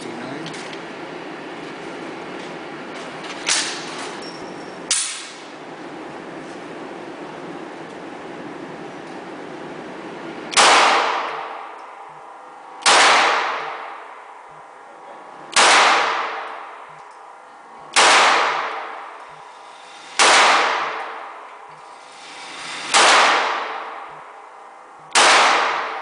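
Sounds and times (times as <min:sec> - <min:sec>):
pistol shots echoing: 0:10.5 - 0:11.6, 0:12.8 - 0:14.0, 0:15.5 - 0:16.6, 0:17.9 - 0:19.1, 0:20.1 - 0:21.2, 0:22.9 - 0:24.2, 0:25.1 - 0:26.0.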